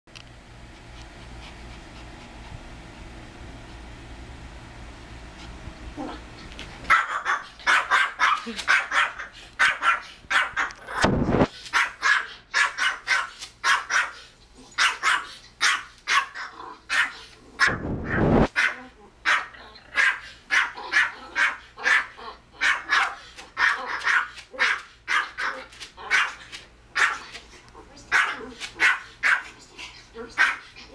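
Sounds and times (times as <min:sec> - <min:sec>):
dog barking on tv: 0:06.9 - 0:11.0, 0:11.7 - 0:14.2, 0:14.8 - 0:26.4, 0:27.0 - 0:27.3, 0:28.1 - 0:29.6, 0:30.2 - 0:30.7
small dog barking rapidly: 0:06.9 - 0:11.1, 0:11.7 - 0:14.2, 0:14.8 - 0:27.4, 0:28.1 - 0:29.6, 0:30.2 - 0:30.7.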